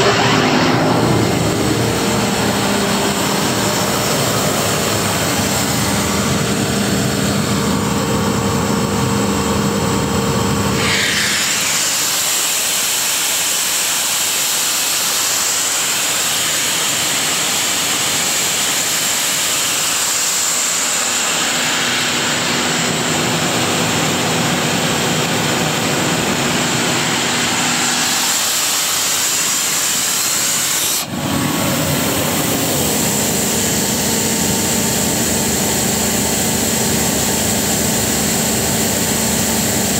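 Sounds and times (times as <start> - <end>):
air rushing hiss: 0.0 - 7.5, 10.8 - 34.0
diesel engine humming: 0.0 - 11.3, 16.1 - 39.9.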